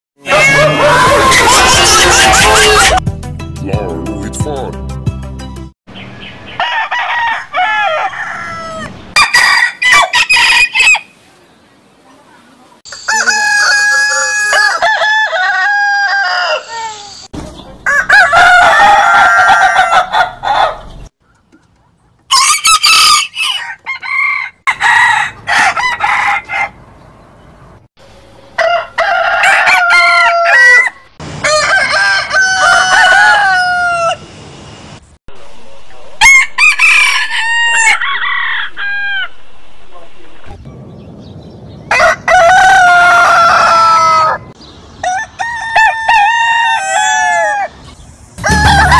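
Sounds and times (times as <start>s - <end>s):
roosters crowing: 0.2s - 3.0s, 6.1s - 11.2s, 12.9s - 21.0s, 22.3s - 26.8s, 28.3s - 34.3s, 36.2s - 39.4s, 41.8s - 48.9s.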